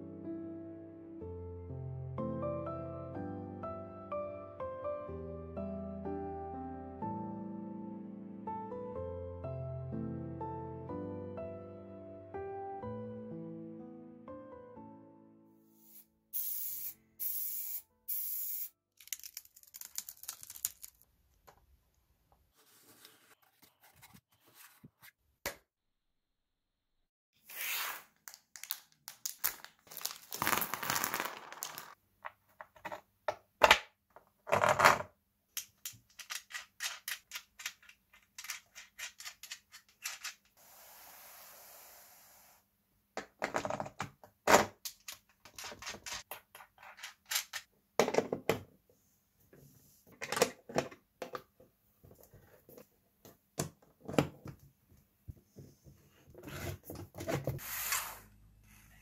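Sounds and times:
steady hiss: 40.6 - 42.6.

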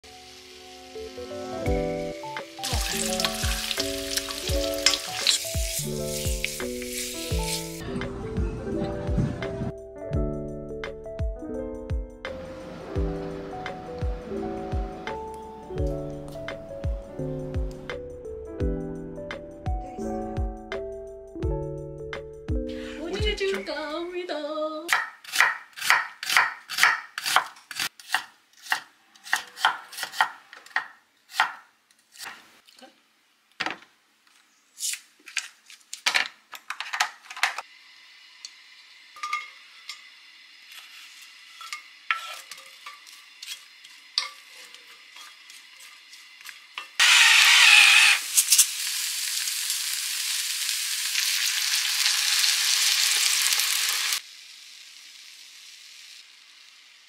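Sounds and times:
oil hissing in a skillet: 0.1 - 7.8, 37.6 - 57.0
vegetables frying in oil: 0.1 - 7.8, 37.6 - 57.0
knife chopping on cutting board: 24.9 - 32.4.

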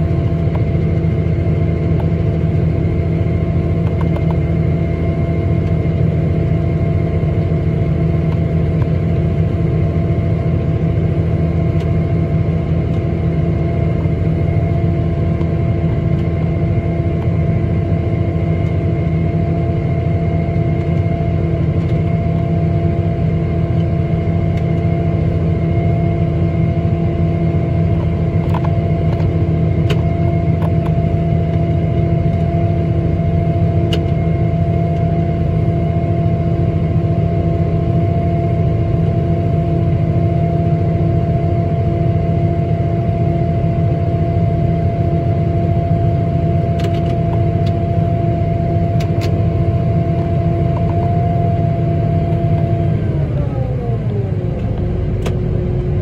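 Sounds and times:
diesel engine and auger running: 0.0 - 56.0.

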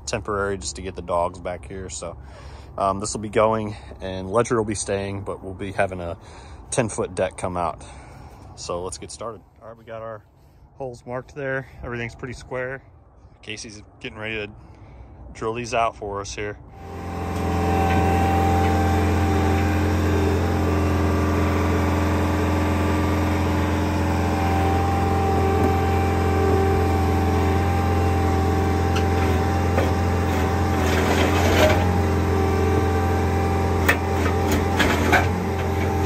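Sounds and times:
diesel engine running under load: 1.5 - 4.7, 5.3 - 8.6, 16.7 - 36.0.

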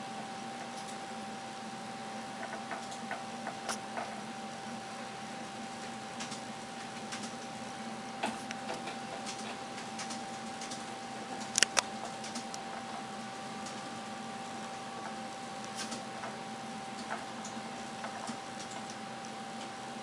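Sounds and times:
faint steady hum: 0.0 - 20.0
rats scratching in glass tank: 2.2 - 4.4, 8.2 - 19.8
sharp clicks: 11.4 - 12.6.

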